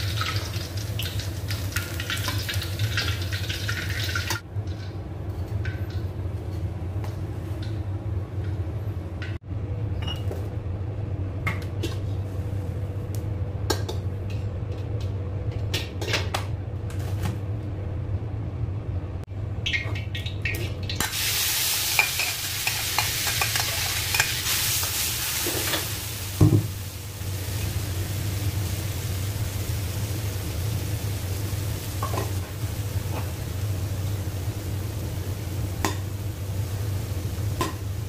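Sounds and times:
steady low hum: 4.4 - 21.0
paste sizzling in hot oil: 21.0 - 38.0.

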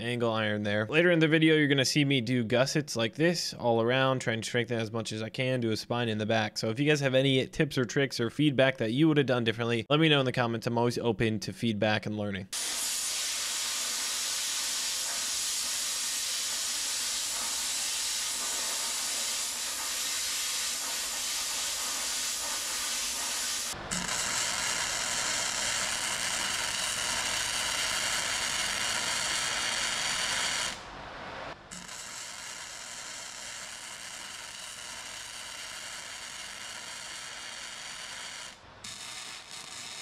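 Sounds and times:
plasma cutter hissing: 12.6 - 30.6
welding arc crackling: 12.6 - 30.8, 31.6 - 40.0.

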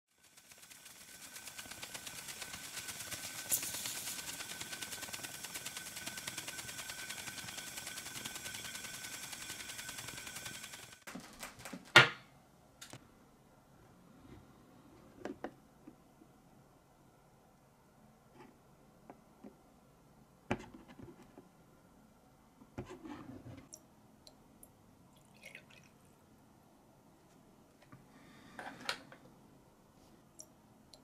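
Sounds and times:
steam jets hissing: 0.2 - 11.1.

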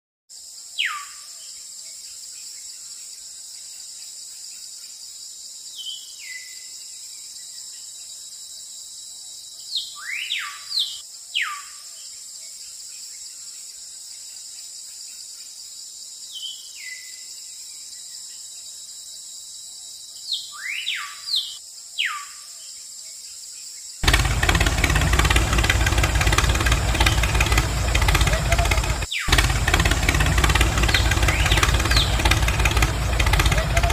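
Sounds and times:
descending whistling bird calls: 9.7 - 11.7, 20.3 - 22.4, 24.9 - 33.9
model tractor engine running: 24.0 - 33.9.

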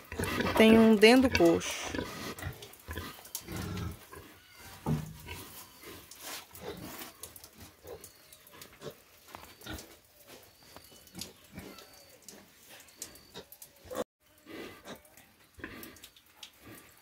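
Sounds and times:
pigs grunting: 0.0 - 7.0, 13.2 - 17.0.

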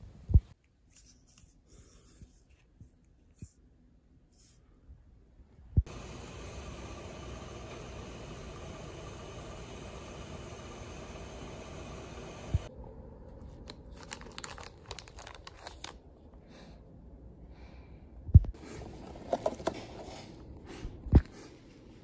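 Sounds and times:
plastic packaging crinkling: 13.4 - 16.0.

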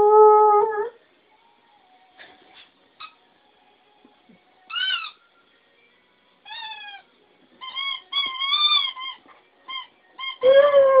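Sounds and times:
dog toy squeaking: 4.7 - 5.2, 7.6 - 10.6.

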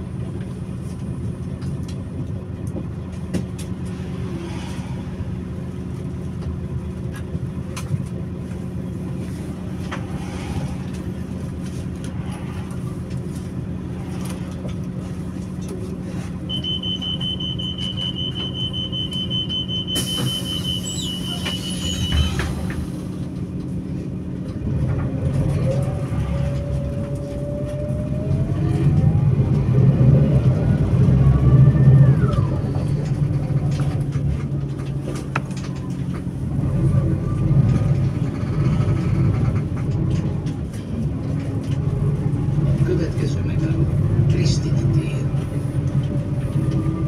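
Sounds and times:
bus diesel engine idling: 5.1 - 28.5, 30.4 - 47.0
engine whine revving: 24.5 - 33.2.

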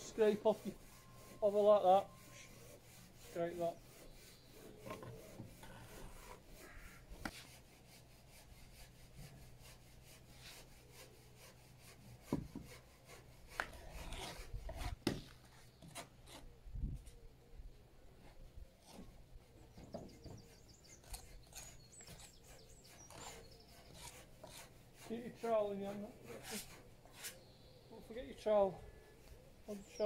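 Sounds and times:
trowel scraping wet mortar: 13.5 - 16.4, 20.4 - 27.4.

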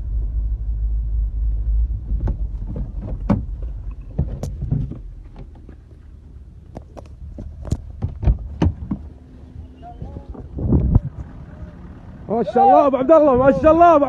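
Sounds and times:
vehicle rumble: 0.0 - 14.0
knocks and clicks in car: 1.8 - 5.8, 6.8 - 9.1.

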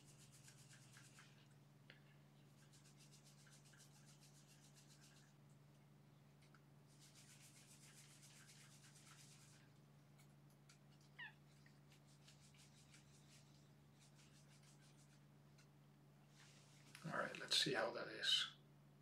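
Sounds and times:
fingers scratching through hair: 0.0 - 1.6, 2.4 - 5.4, 6.3 - 15.7.

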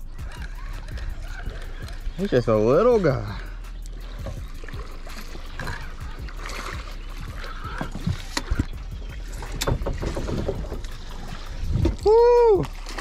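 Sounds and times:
steady low rumble: 0.0 - 13.0
gear knocking on metal boat: 7.7 - 11.0.

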